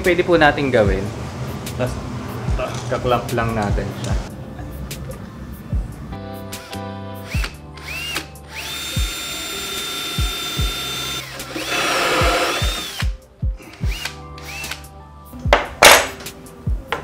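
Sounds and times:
cordless drill boring through wood: 6.6 - 14.8.

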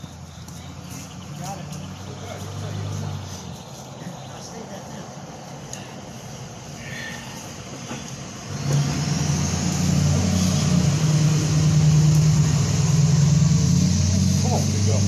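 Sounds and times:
engine starting and droning: 5.8 - 15.0.

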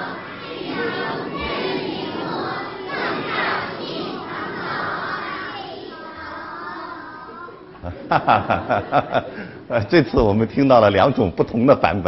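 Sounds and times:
children chanting together: 0.0 - 7.6.

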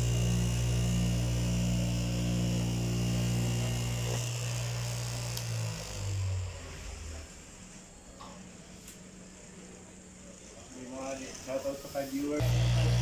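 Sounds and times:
electric cloth cutter humming: 0.0 - 7.3, 12.4 - 13.0.

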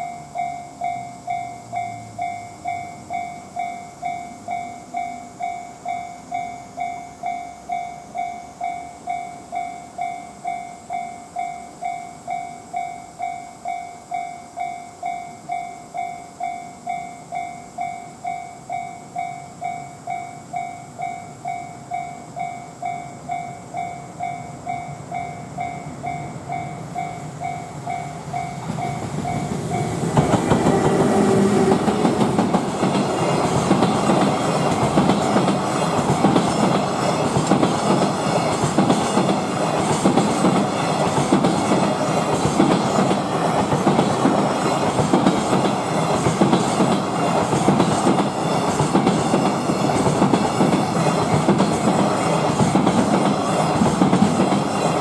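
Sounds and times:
train wheels clattering over rails: 24.6 - 55.0.

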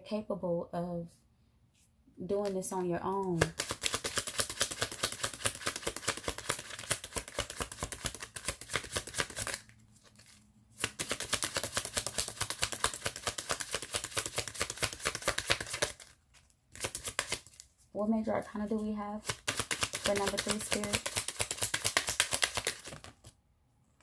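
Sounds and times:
cards being shuffled by hand: 2.4 - 23.4.

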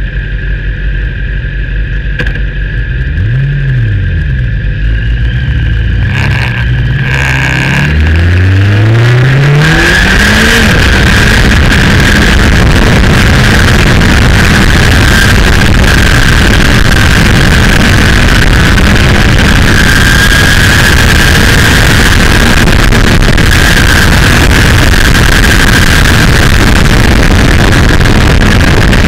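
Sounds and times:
wind rush on microphone: 1.4 - 29.0
motorcycle engine revving: 2.2 - 29.0.

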